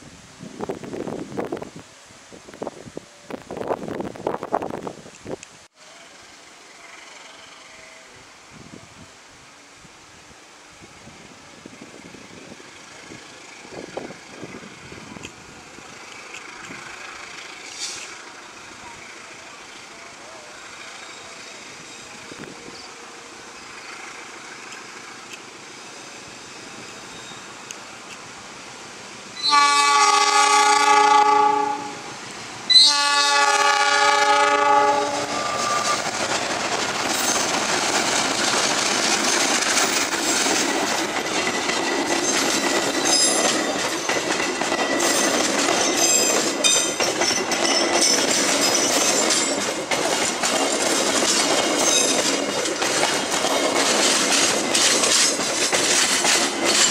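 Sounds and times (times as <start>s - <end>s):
train passing at speed: 0.0s - 56.9s
wheels clicking over rail joints: 12.9s - 22.6s, 35.2s - 56.9s
locomotive horn blasts: 29.4s - 32.1s, 32.7s - 36.0s.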